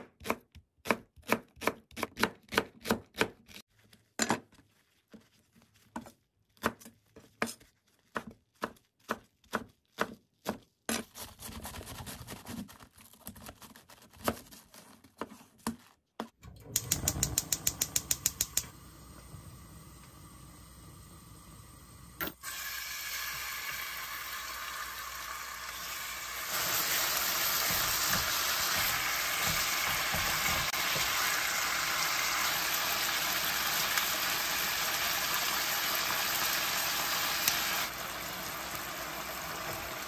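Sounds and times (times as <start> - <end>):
knife chopping on wooden board: 0.0 - 3.6, 27.5 - 31.0
gas burner hissing: 16.6 - 24.1
gas stove igniter ticking: 16.7 - 18.8.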